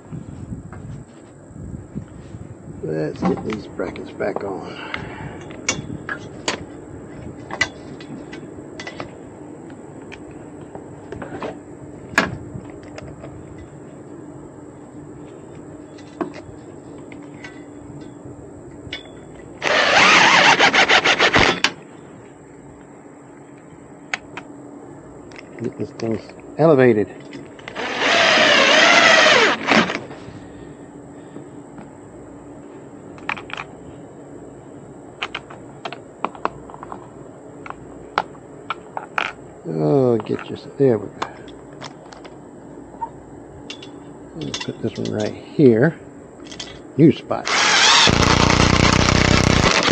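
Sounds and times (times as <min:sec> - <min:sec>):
clicks and knocks of parts handled: 0:07.4 - 0:09.1, 0:25.3 - 0:26.5, 0:33.2 - 0:33.7, 0:35.2 - 0:39.4, 0:40.2 - 0:40.6, 0:41.2 - 0:42.4, 0:43.6 - 0:45.4, 0:46.4 - 0:46.9
cordless drill driving a fastener: 0:19.6 - 0:21.7, 0:27.7 - 0:30.0, 0:47.4 - 0:49.9.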